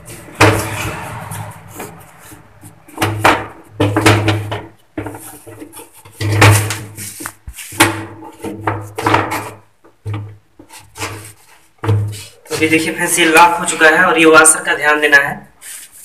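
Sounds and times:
plastic tank knocking and rattling: 0:02.8 - 0:07.0, 0:07.8 - 0:11.2.

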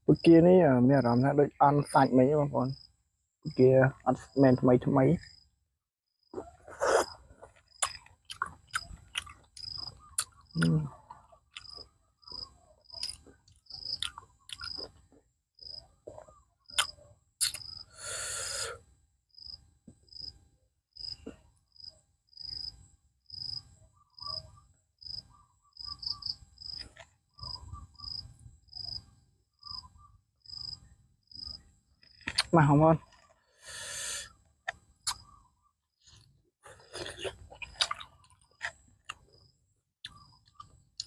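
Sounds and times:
insect chirping: 0:08.7 - 0:10.9, 0:11.5 - 0:15.0, 0:16.7 - 0:18.7, 0:19.3 - 0:20.4, 0:21.0 - 0:32.4.

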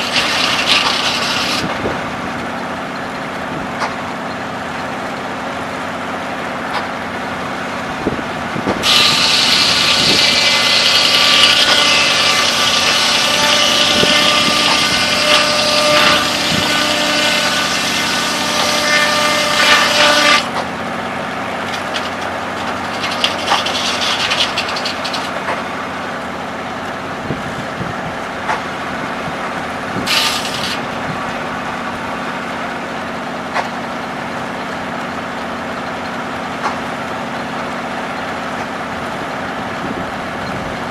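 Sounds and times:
circular saw blade cutting log: 0:00.0 - 0:02.6, 0:08.7 - 0:26.2, 0:29.4 - 0:34.5
engine running: 0:00.0 - 0:40.9.

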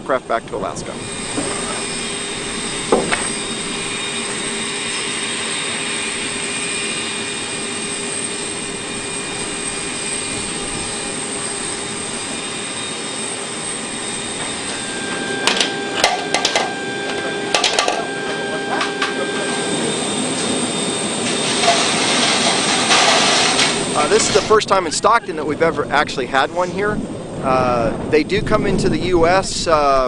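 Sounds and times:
aircraft turbine whine: 0:00.0 - 0:30.0
sharp metallic clanks: 0:15.4 - 0:19.2, 0:21.2 - 0:24.5.

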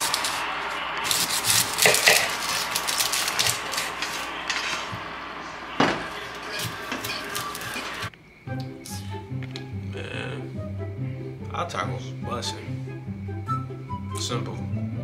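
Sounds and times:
steady cooking hiss: 0:00.0 - 0:14.0
metal utensil scraping pan: 0:01.4 - 0:04.9.

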